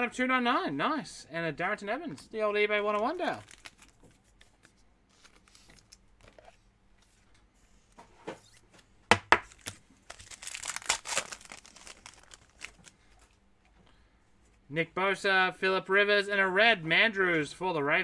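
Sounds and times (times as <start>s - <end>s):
foil wrapper tearing and crinkling: 2.9s - 4.4s, 9.5s - 13.2s.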